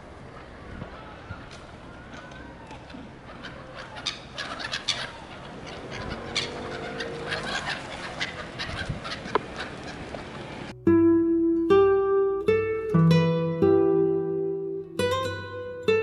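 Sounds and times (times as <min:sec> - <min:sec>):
gulls calling: 0:00.0 - 0:10.8.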